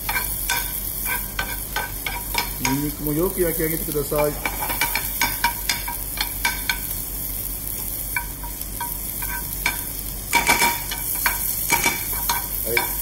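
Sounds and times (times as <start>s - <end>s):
bacon sizzling in a frying pan: 0.0s - 13.0s
metal spoon clinking on pan: 0.1s - 2.8s, 8.2s - 13.0s.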